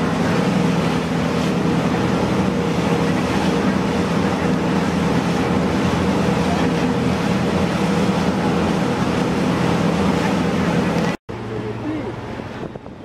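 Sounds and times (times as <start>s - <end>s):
boat engines droning: 0.0s - 13.0s
churning wake and spray: 0.0s - 13.0s.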